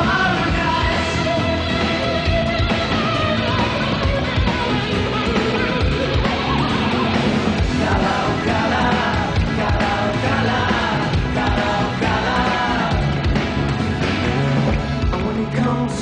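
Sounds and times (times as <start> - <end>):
man singing: 0.0 - 1.7, 7.6 - 13.2, 15.0 - 16.0
rock band playing: 0.0 - 16.0.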